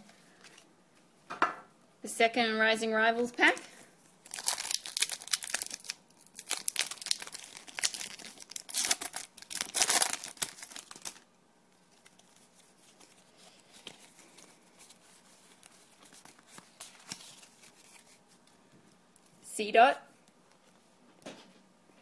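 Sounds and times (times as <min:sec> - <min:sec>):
foil wrapper tearing and crinkling: 0:04.2 - 0:11.3.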